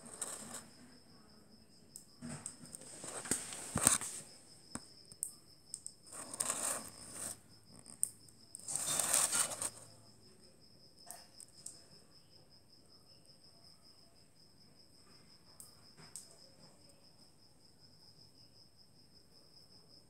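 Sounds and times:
rustling: 0.0s - 0.7s, 2.8s - 4.3s, 6.1s - 7.4s, 8.6s - 9.8s
cricket trilling: 0.0s - 20.0s.

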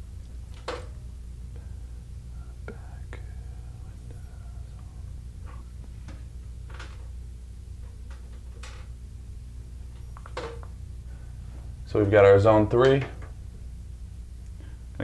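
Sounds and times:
steady low hum: 0.0s - 15.0s
light clicks and rustles of wires: 4.7s - 7.2s, 7.8s - 9.0s, 9.9s - 10.8s.

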